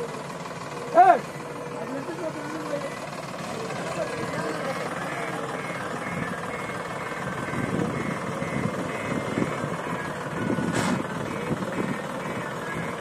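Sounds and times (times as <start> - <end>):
diesel engines under load: 0.0 - 13.0.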